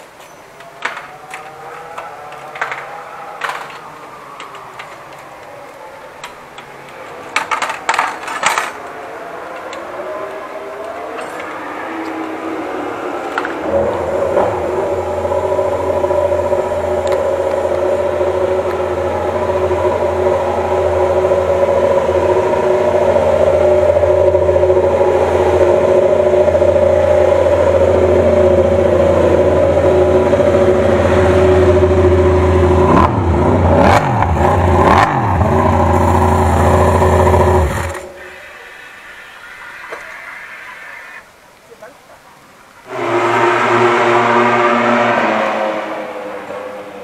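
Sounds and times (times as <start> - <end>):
engine throttle blips: 9.5 - 39.2, 42.8 - 47.0.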